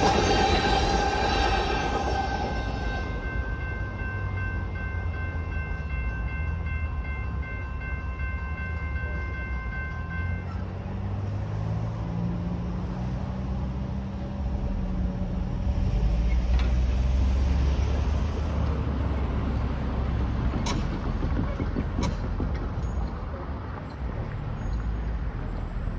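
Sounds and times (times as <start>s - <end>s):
railroad crossing bells ringing: 0.0s - 12.7s, 21.9s - 25.2s
road vehicle engines rumbling: 0.0s - 25.9s.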